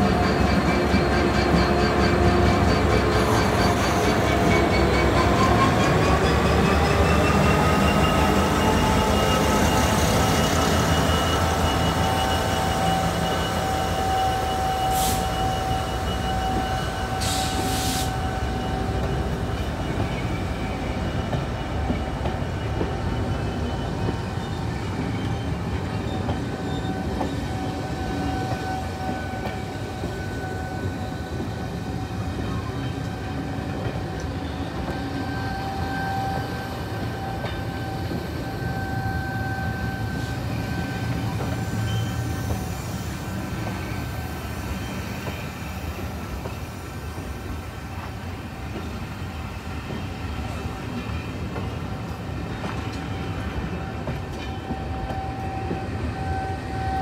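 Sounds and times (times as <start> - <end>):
diesel locomotive engine under power: 0.0 - 57.0
train rumble: 0.0 - 57.0
brief hisses: 17.2 - 18.2.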